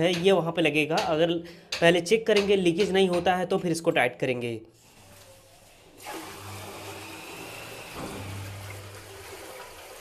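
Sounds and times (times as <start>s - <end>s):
water pouring into toilet bowl: 4.9s - 10.0s.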